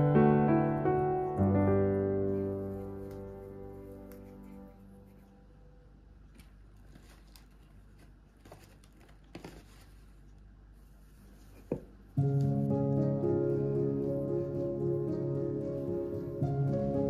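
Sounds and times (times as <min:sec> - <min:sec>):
background music: 0:00.0 - 0:05.2, 0:12.2 - 0:17.0.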